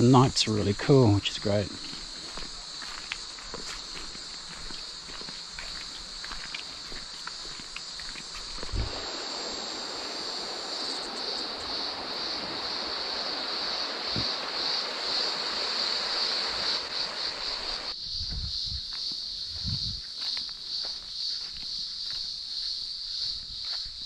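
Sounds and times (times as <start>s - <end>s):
insects droning: 0.0s - 24.0s
footsteps on dirt track: 1.6s - 9.0s, 18.2s - 24.0s
river rapids rushing: 8.8s - 17.9s.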